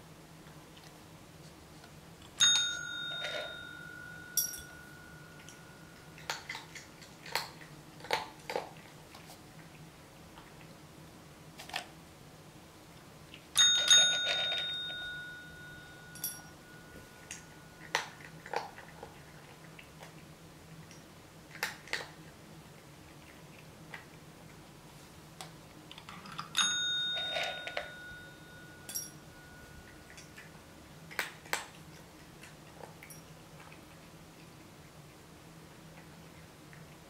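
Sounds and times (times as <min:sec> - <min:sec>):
cat eating dry kibble: 0:00.3 - 0:37.0
desk call bell ringing: 0:02.4 - 0:06.1, 0:13.6 - 0:17.8, 0:26.6 - 0:30.1.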